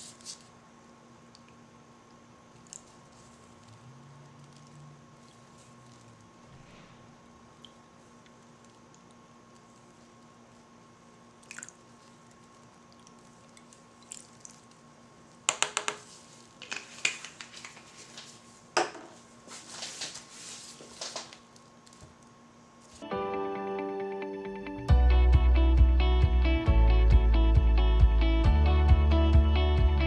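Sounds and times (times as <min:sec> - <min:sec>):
soft music with plucked notes: 0:23.0 - 0:30.0.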